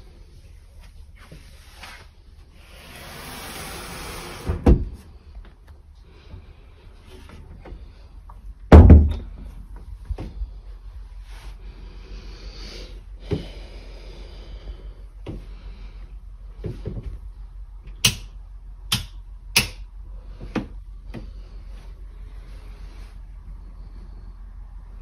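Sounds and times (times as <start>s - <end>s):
soft rustling: 0.0s - 2.5s
footsteps and handling knocks: 7.0s - 10.6s, 16.6s - 17.3s.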